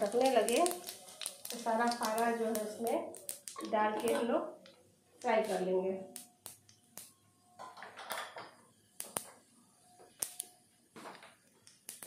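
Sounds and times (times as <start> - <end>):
oil sizzling: 0.0 - 4.6, 10.1 - 10.5
mustard seeds popping in oil: 0.0 - 12.0.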